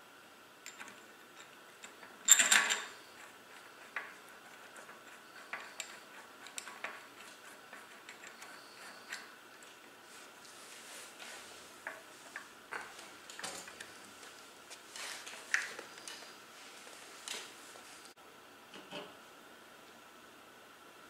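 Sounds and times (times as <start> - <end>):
metallic clatter: 0.6 - 9.3.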